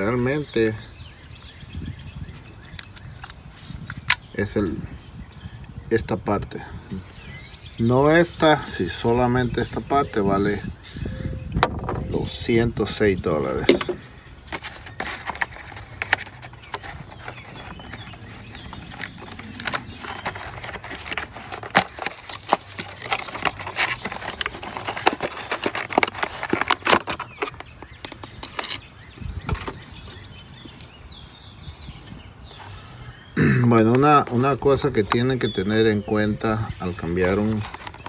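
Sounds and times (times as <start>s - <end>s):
cardboard box rustling: 13.7s - 29.9s, 37.0s - 38.0s.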